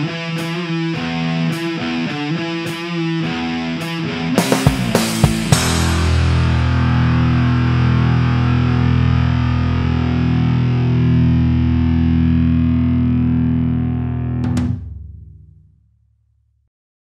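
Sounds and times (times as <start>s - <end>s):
distorted electric guitar chord: 0.0s - 15.4s
sharp hits: 4.4s - 8.9s.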